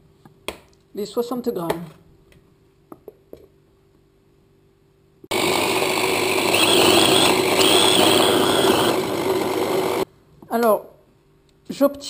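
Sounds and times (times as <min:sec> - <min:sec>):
food chopper motor whining: 0:05.3 - 0:10.1.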